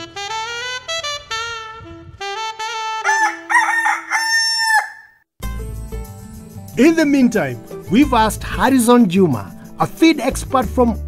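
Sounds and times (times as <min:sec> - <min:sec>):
brass and saxophone music: 0:00.0 - 0:04.2
rooster crowing: 0:03.0 - 0:05.2.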